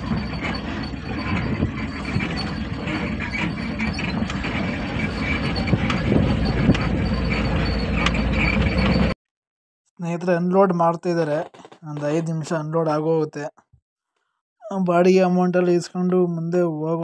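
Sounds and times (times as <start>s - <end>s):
truck body rattling and creaking: 0.0s - 9.2s, 11.1s - 12.9s
truck engine running low: 0.0s - 9.2s.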